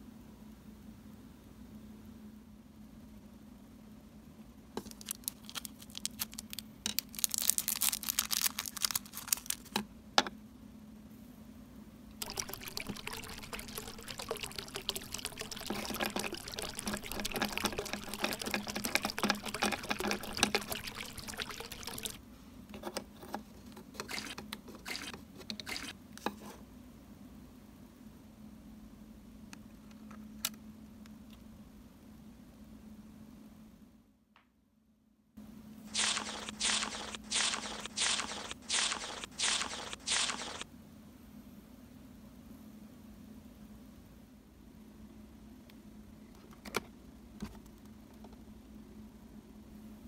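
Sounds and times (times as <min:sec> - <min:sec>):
plastic bag crinkling: 0:04.8 - 0:09.8
small plastic pieces clicking: 0:04.8 - 0:09.8
tap water running into bowl: 0:12.2 - 0:22.2.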